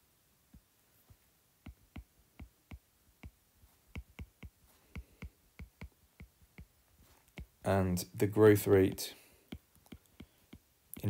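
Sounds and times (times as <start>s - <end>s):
stylus tapping on tablet screen: 1.6s - 7.6s, 8.8s - 11.0s.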